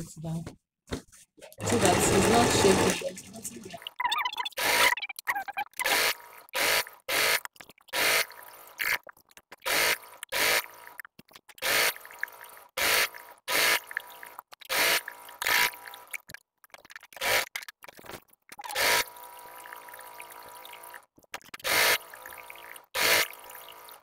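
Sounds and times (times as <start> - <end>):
sewing machine stitching: 1.6 - 3.4, 18.6 - 24.0.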